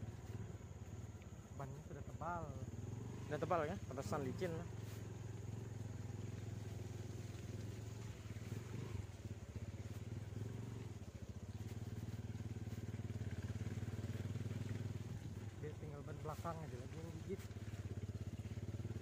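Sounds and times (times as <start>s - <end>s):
vehicle engine running low: 0.0s - 19.0s.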